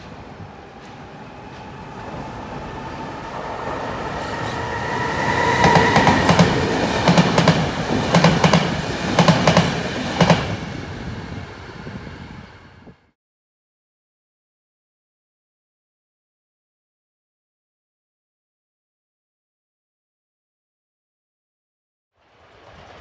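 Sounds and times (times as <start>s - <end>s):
electric train rumble and whine: 0.0s - 13.1s.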